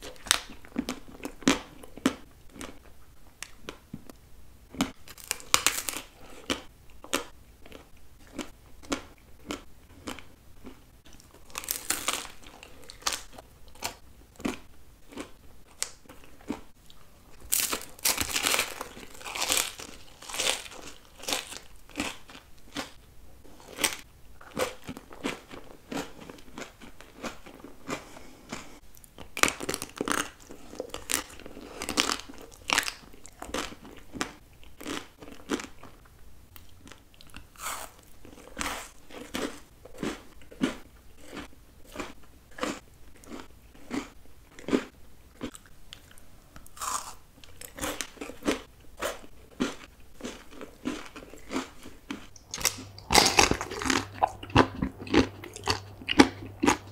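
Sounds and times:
crunching bites: 4.8s - 10.3s, 11.4s - 16.6s, 17.4s - 23.0s, 37.4s - 56.9s
chewing: 36.6s - 56.9s.

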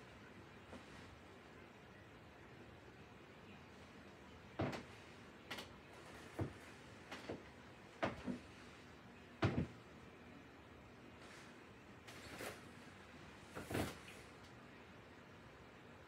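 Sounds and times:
short knocks and thuds: 9.4s - 9.7s.

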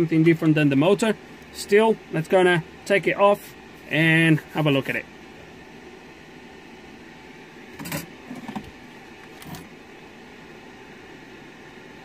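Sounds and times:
fan hum: 0.0s - 12.0s.

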